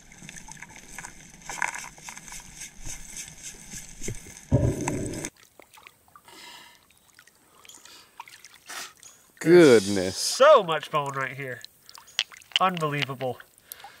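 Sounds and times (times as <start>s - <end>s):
underwater gravel clicking: 0.0s - 5.3s, 11.0s - 13.9s
water sloshing: 0.0s - 6.2s.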